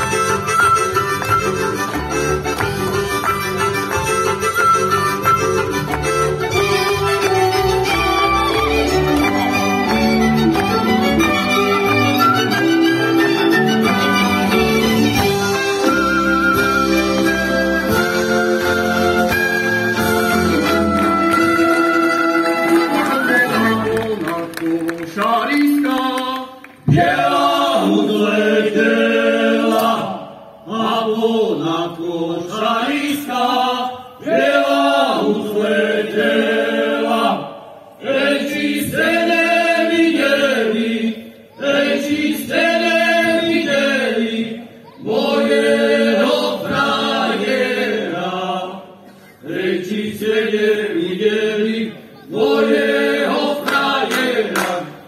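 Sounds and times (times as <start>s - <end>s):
choir singing unaccompanied: 26.9s - 55.0s.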